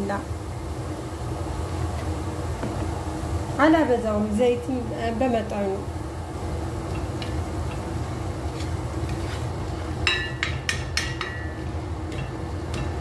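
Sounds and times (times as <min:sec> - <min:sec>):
steady low hum: 0:00.0 - 0:13.0
spatula stirring onions in oil: 0:05.2 - 0:13.0
spatula knocking against pot: 0:10.0 - 0:13.0.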